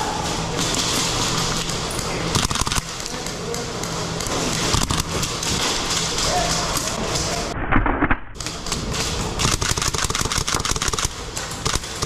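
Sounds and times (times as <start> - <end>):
low hum: 0.0 - 12.0
airsoft gun shots: 9.4 - 12.0.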